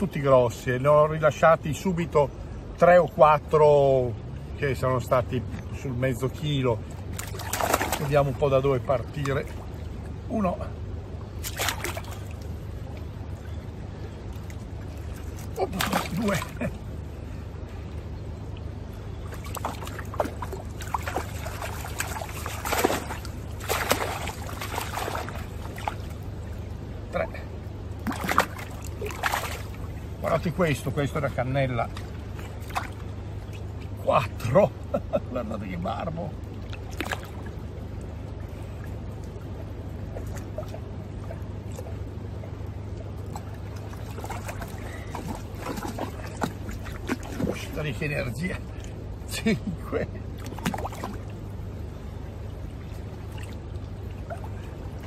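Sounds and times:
water splashing and dripping: 0:06.9 - 0:10.2, 0:11.3 - 0:13.2, 0:14.3 - 0:16.7, 0:18.5 - 0:26.8, 0:28.0 - 0:30.4, 0:31.8 - 0:34.0, 0:36.4 - 0:42.0, 0:42.7 - 0:49.0, 0:50.3 - 0:51.6, 0:52.5 - 0:55.0.

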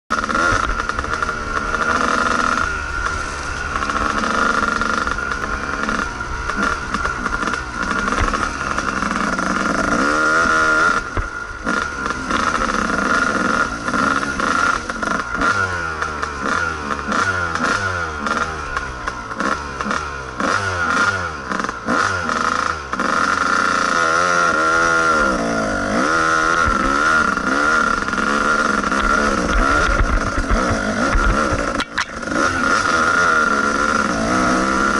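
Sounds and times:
dirt bike engine revving: 0:00.1 - 0:34.9.

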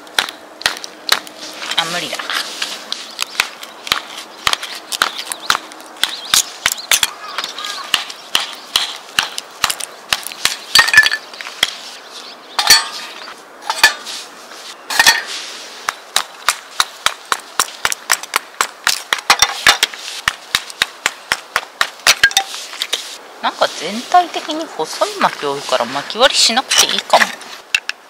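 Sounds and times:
wood splitting cracks: 0:00.0 - 0:01.3, 0:07.9 - 0:11.7.

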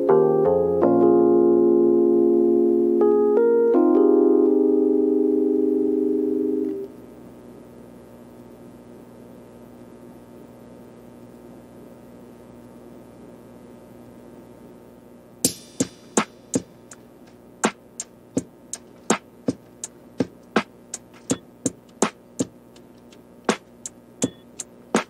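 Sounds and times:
electronic beat of clicking hits: 0:15.4 - 0:25.0.

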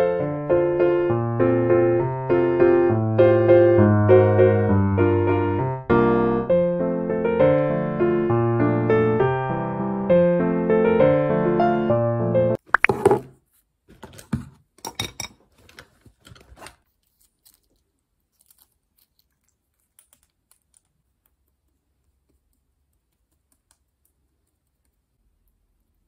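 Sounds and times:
small objects clicking and tapping: 0:17.3 - 0:25.5.

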